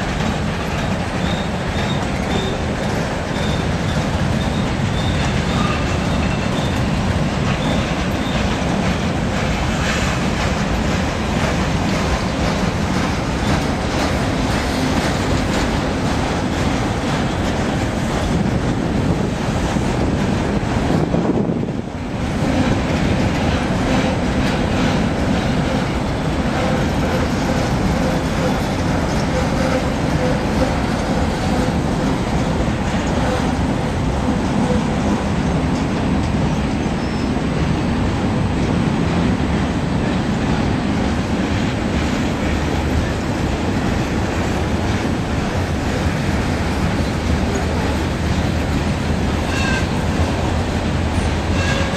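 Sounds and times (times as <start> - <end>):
clickety-clack over rail joints: 0.0 - 51.9
train wheels rumbling on rails: 0.0 - 51.9
faint wheel squeal: 37.0 - 37.4.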